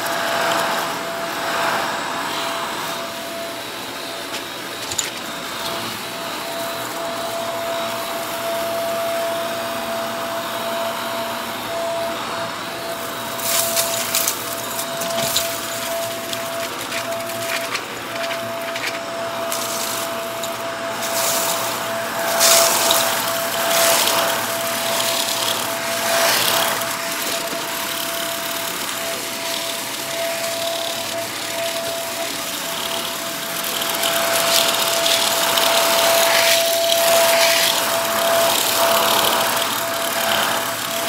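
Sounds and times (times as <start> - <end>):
vacuum cleaner motor whine: 0.0 - 41.0
vacuum sucking up debris: 12.8 - 41.0.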